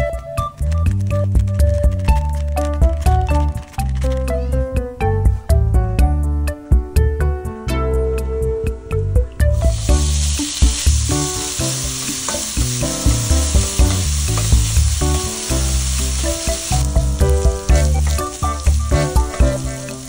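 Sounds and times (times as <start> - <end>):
background music: 0.0 - 20.0
bacon sizzling in frying pan: 9.5 - 20.0
spatula scraping and tapping pan: 12.0 - 12.7.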